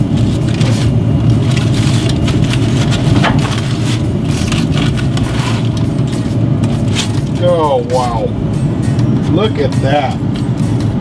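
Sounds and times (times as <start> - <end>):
aluminium foil crinkling: 0.0 - 7.5
steady low rumble: 0.0 - 11.0.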